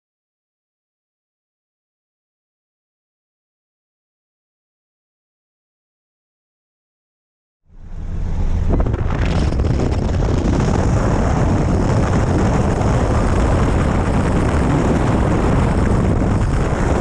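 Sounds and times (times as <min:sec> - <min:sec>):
propeller wash buffeting microphone: 0:07.9 - 0:17.0.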